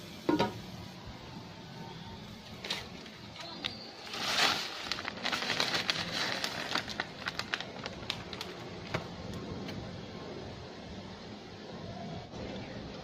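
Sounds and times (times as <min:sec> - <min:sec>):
water boiling and hissing: 0:00.0 - 0:09.8
spaghetti clicking and crackling: 0:02.5 - 0:09.8.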